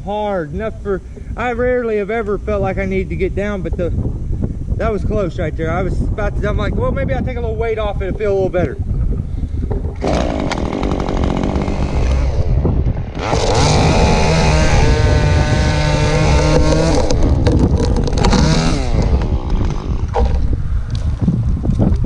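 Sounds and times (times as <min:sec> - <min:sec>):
chainsaw revving and cutting: 0:10.0 - 0:20.4.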